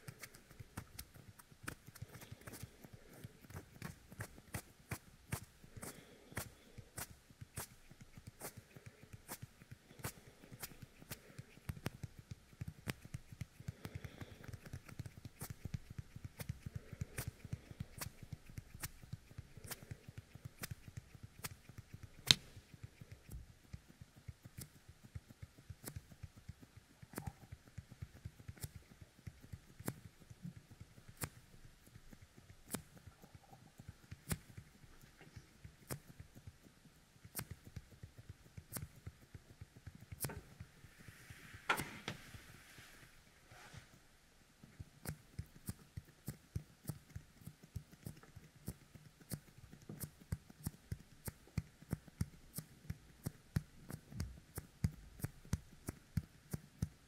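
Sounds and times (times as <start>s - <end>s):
sticky fingertips crackling: 0.0s - 41.9s.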